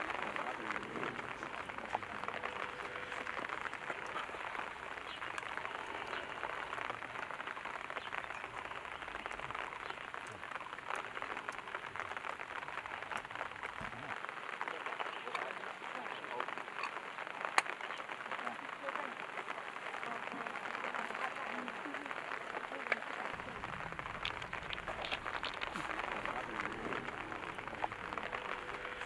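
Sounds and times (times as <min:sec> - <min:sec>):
hands brushing soil: 0:24.4 - 0:28.8.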